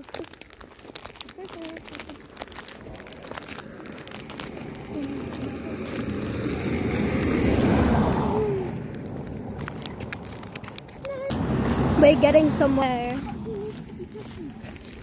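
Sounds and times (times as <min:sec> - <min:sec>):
vehicle passing by: 0:02.9 - 0:14.9.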